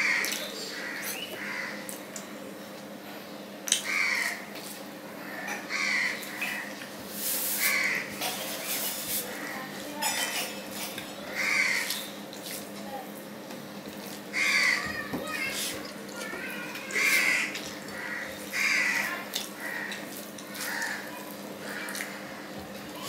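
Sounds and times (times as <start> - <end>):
crow cawing: 0.0 - 1.8, 3.8 - 4.4, 5.2 - 6.7, 7.6 - 8.2, 11.3 - 12.0, 14.3 - 14.9, 16.9 - 22.5
person chewing: 17.4 - 22.2.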